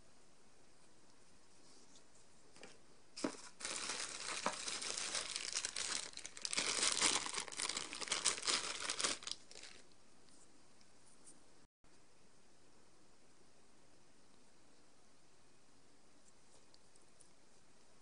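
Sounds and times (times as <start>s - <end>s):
bubble wrap crinkling: 3.2s - 10.0s.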